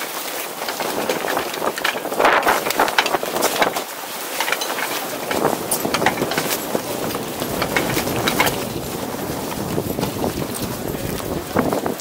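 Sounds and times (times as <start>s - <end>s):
wind and water rushing: 0.0s - 12.0s
sharp clicks and knocks: 0.6s - 3.8s, 4.4s - 8.7s.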